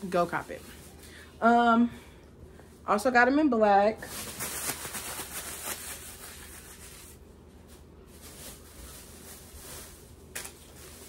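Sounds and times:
clothes rustling: 4.0 - 11.0.

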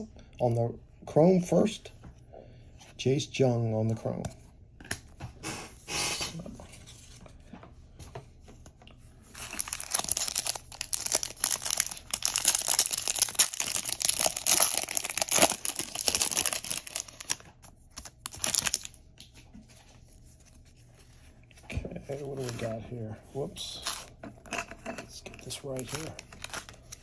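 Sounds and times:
foil wrapper tearing and crinkling: 9.3 - 17.4, 18.0 - 19.0.

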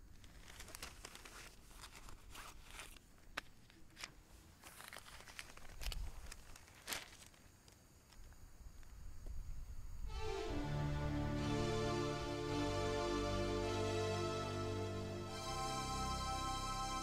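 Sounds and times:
newspaper rustling: 0.0 - 7.7.

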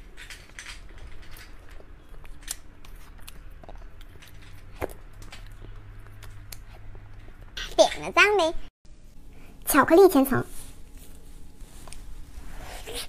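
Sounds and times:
wet chewing noises: 1.4 - 7.6.

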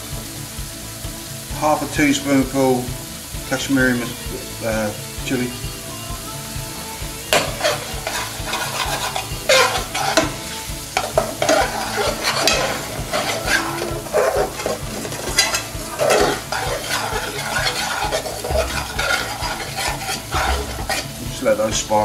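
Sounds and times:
oil sizzling: 0.0 - 22.0
metal spoon scraping frying pan: 7.3 - 21.5.

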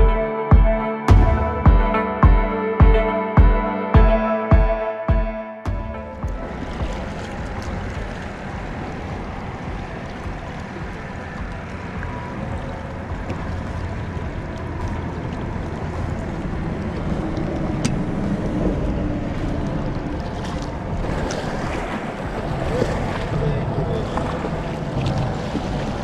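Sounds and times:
wind noise on microphone: 5.7 - 26.0
waves lapping against rocks: 6.3 - 26.0.

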